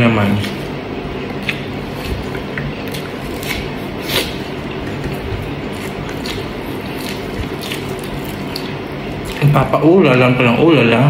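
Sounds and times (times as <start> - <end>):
steady background hiss: 0.0 - 11.0
person chewing with wet smacks: 1.2 - 9.6.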